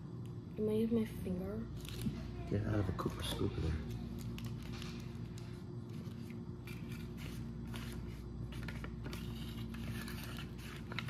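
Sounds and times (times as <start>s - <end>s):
steady low hum: 0.0s - 11.0s
plastic crinkling: 3.1s - 11.0s.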